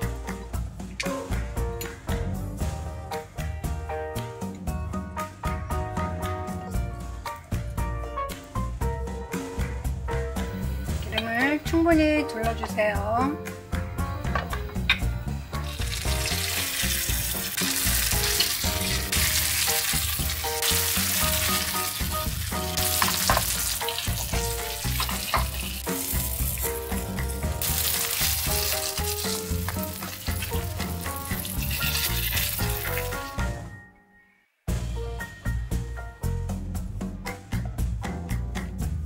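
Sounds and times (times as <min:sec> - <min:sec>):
dumplings sizzling in oil: 0:15.6 - 0:33.3.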